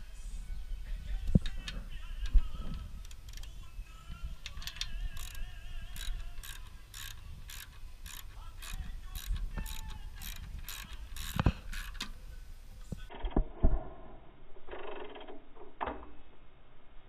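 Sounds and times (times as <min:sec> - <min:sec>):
faint music: 0:00.0 - 0:13.8
rhythmic mechanical clicking: 0:01.2 - 0:12.1.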